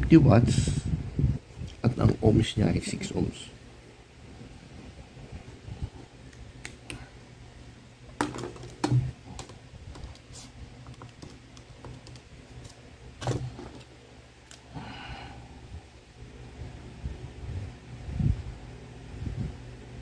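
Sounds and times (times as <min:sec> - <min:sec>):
calculator keys clicking: 0:10.9 - 0:12.3.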